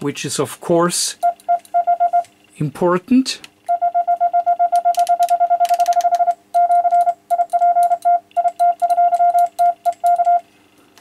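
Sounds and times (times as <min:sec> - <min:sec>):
morse code beeps: 0:01.2 - 0:02.3, 0:03.7 - 0:10.4.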